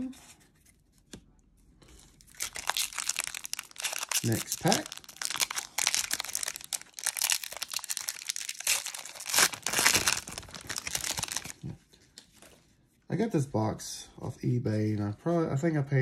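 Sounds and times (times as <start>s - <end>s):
wrapper crinkling and tearing: 2.1s - 12.4s.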